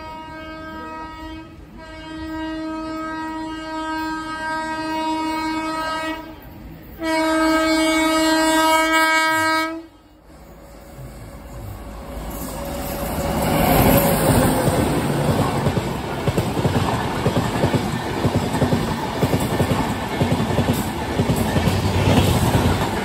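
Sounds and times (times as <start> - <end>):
locomotive air horn blasts: 0.0 - 10.3
train rumble: 0.0 - 23.0.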